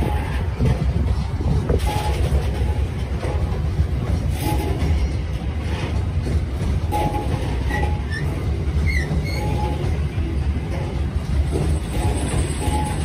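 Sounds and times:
train rumbling past: 0:00.0 - 0:13.0
high squeaks: 0:07.1 - 0:10.0.

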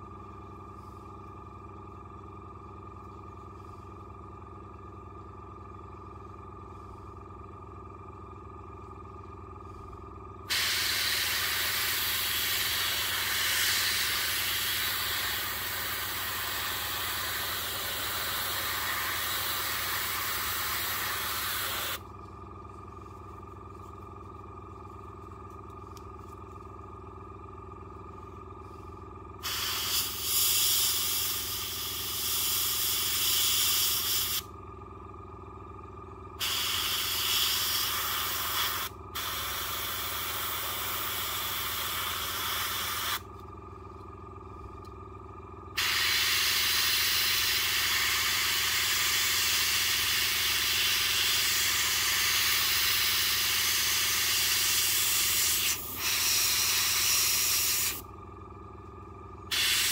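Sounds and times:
steady low hum: 0:00.0 - 0:59.9
airbrush hissing: 0:10.5 - 0:22.0, 0:29.4 - 0:34.4, 0:36.4 - 0:43.2, 0:45.8 - 0:58.0, 0:59.5 - 0:59.9.

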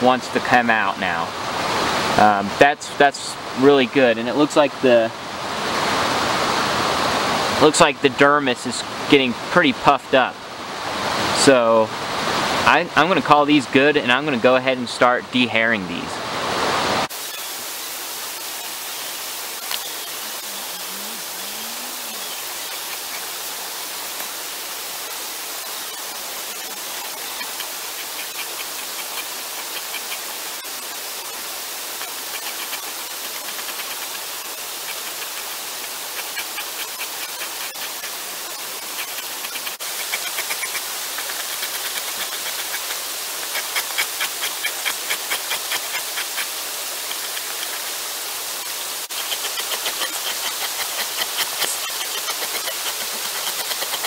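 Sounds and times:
creek rushing: 0:00.0 - 0:54.0
blade scraping hide: 0:25.8 - 0:47.9, 0:48.6 - 0:54.0.

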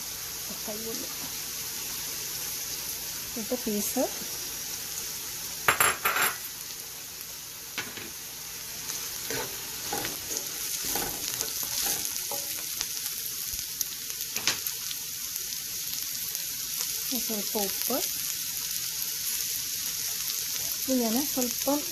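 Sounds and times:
vegetables sizzling in a pan: 0:00.0 - 0:21.9
spoon scraping a pan: 0:09.2 - 0:12.8.

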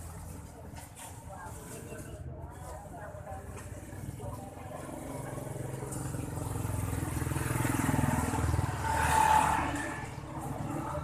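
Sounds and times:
vehicle engine passing: 0:04.1 - 0:11.0.

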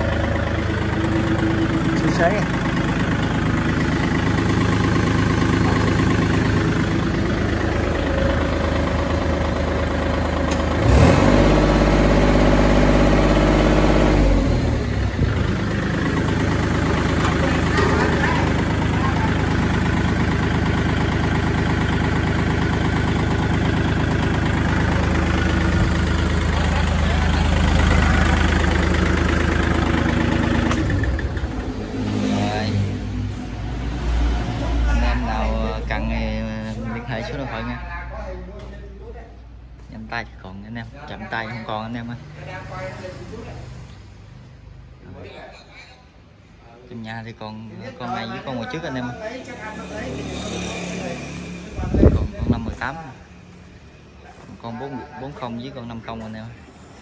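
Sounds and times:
tractor diesel engine running: 0:00.0 - 0:38.3.

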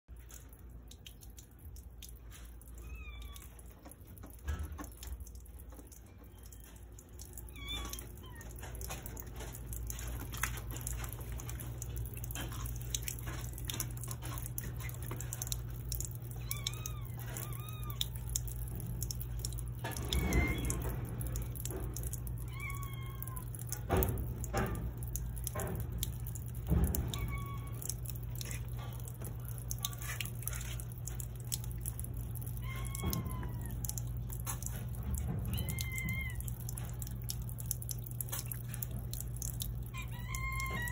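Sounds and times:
cat lapping water: 0:00.1 - 0:40.9
water trickling onto concrete: 0:00.1 - 0:40.9.

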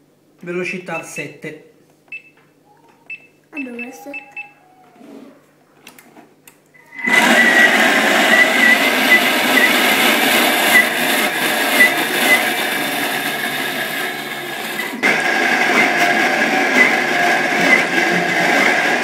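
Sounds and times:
food processor blending: 0:06.8 - 0:19.0.

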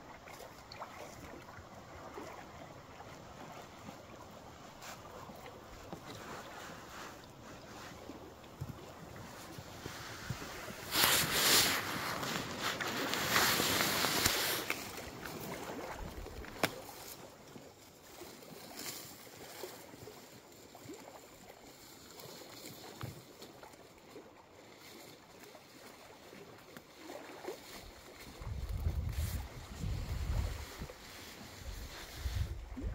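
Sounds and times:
leaves and twigs rustling: 0:05.8 - 0:23.7, 0:27.0 - 0:32.7.

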